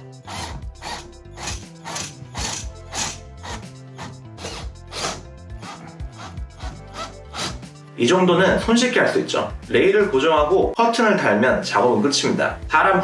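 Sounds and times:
background music with steady beat: 0.0 - 13.0
cordless drill driving screws: 0.2 - 7.6.

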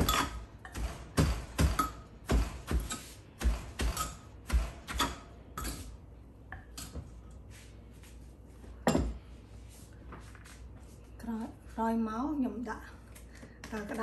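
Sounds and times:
pestle pounding in mortar: 0.0 - 5.2.

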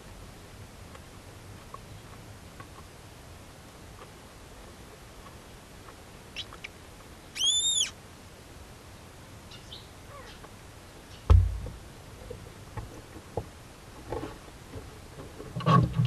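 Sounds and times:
owl high-pitched call: 6.4 - 6.7, 7.3 - 8.0, 9.5 - 10.4
owl chirps: 6.4 - 8.0, 9.5 - 10.5
heavy thump: 11.3 - 11.8.

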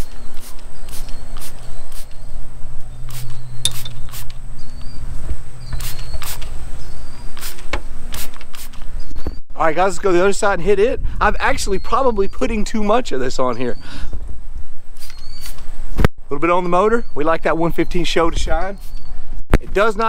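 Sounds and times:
spray bottle hissing sprays: 0.0 - 8.8
steady low hum: 0.4 - 8.9.

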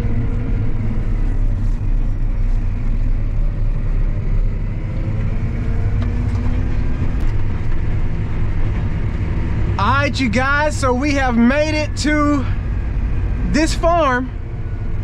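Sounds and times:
tractor engine rumbling: 0.0 - 15.0.

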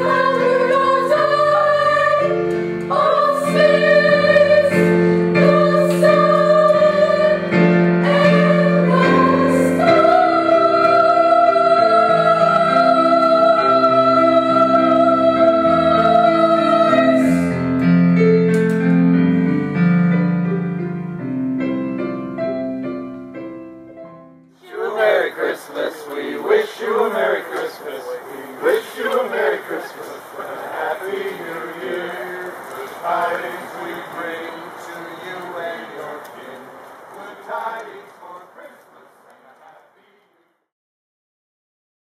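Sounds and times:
children's choir singing: 0.0 - 18.0, 24.6 - 40.1
piano accompaniment: 0.0 - 38.1.

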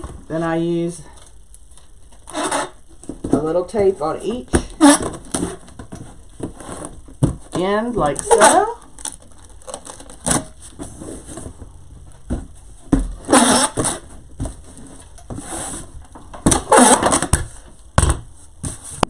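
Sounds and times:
packing tape ripping: 8.2 - 10.6, 16.5 - 17.5.

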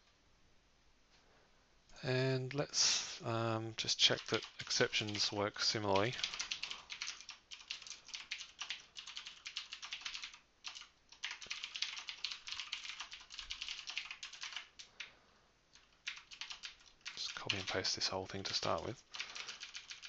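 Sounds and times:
keyboard typing clicks: 6.0 - 15.1, 19.1 - 20.0.

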